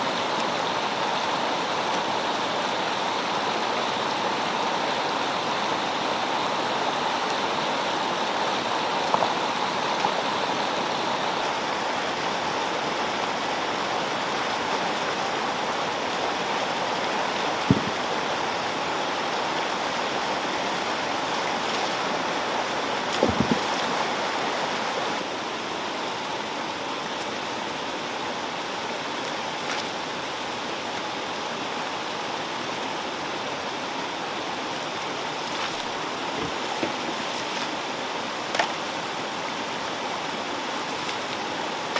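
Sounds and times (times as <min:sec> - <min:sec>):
stream rushing over rocks: 0:00.0 - 0:41.9
stones knocking: 0:17.7 - 0:18.0, 0:23.2 - 0:23.8.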